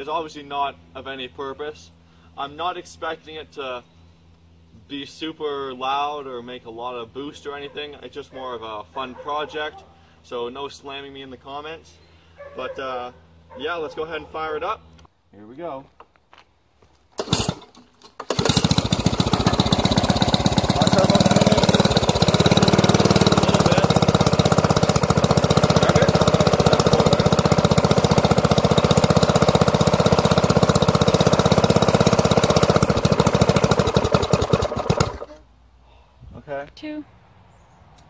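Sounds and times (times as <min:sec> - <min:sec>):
lawn mower engine running: 0:17.2 - 0:35.4
pull starter: 0:17.2 - 0:35.4.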